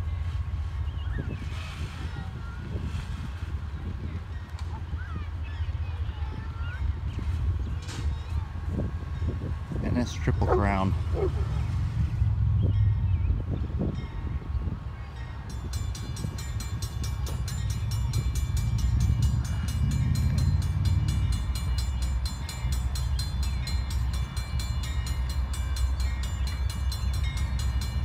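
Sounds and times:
low rumble: 0.0 - 14.9, 15.8 - 23.3
railroad crossing bells clanging: 0.0 - 28.0.

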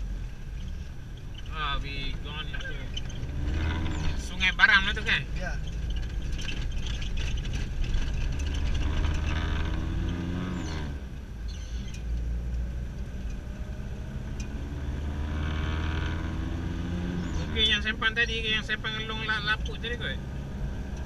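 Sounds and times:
car engine hum: 0.0 - 21.0
tyre noise on paved road: 0.0 - 21.0.

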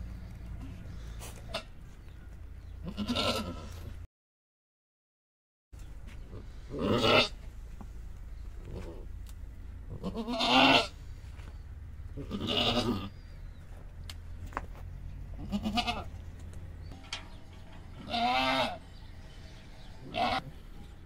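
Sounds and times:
goat bleating: 2.8 - 3.9, 6.7 - 7.4, 9.9 - 11.0, 12.1 - 13.2, 15.3 - 16.2, 18.0 - 18.8, 20.0 - 20.7.

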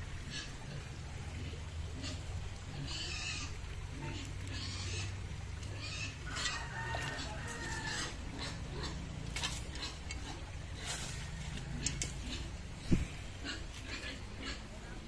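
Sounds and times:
drawn-out animal call: 0.0 - 15.0
grass and leaves rustling: 0.0 - 15.0.

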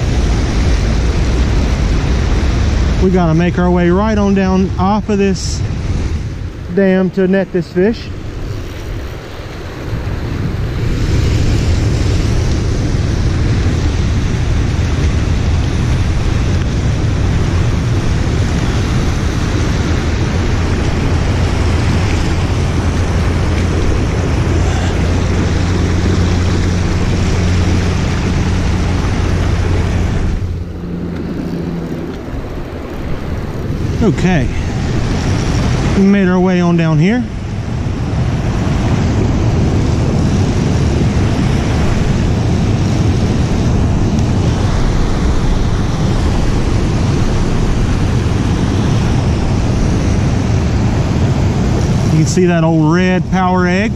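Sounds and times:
low rumble: 0.0 - 53.9
creek water rushing over rocks: 14.2 - 53.8.

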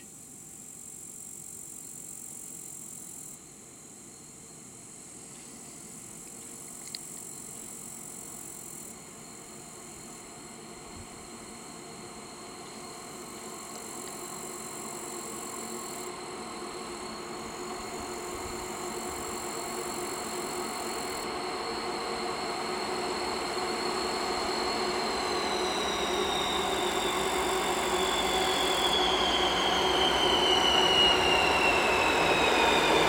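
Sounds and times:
diesel locomotive engines running: 5.2 - 33.0
high whine: 8.9 - 33.0.

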